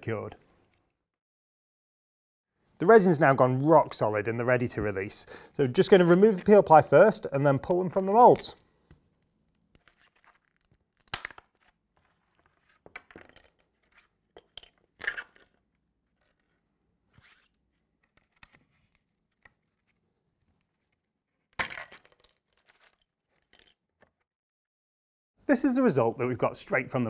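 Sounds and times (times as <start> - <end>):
tearing and cracking: 8.0 - 12.8.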